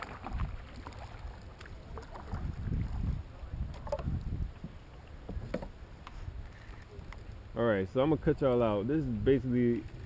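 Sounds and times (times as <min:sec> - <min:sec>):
paddle strokes splashing water: 0:00.0 - 0:07.5
wind rumbling on microphone: 0:00.0 - 0:10.0.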